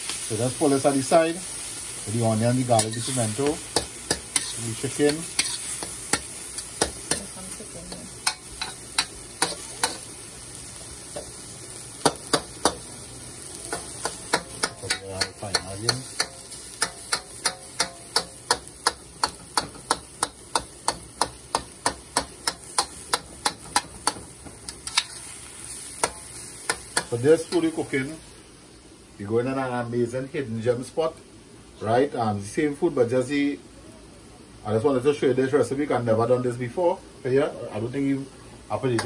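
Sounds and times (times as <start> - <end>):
food sizzling: 0.0 - 39.0
metal spatula scraping a wok: 2.7 - 10.1, 13.7 - 27.8.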